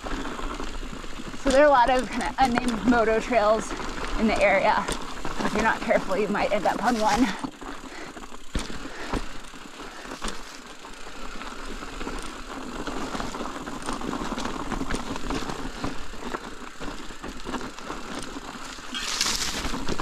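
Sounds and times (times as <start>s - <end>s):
bike clicks and knocks: 0.0s - 20.0s
tyres crunching over rock: 0.0s - 20.0s.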